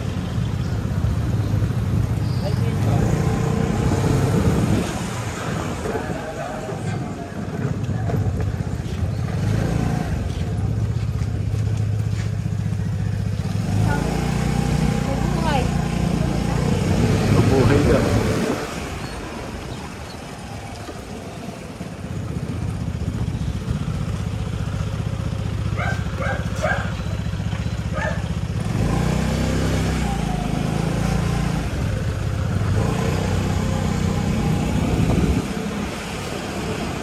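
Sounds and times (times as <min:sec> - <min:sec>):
small motorcycle engine: 0:12.0 - 0:18.6, 0:21.8 - 0:37.0.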